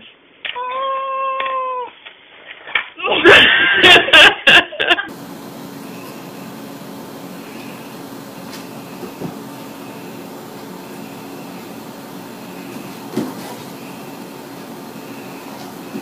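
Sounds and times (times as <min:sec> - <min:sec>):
household appliance humming: 0:05.1 - 0:16.0
soft thumps: 0:12.7 - 0:13.7.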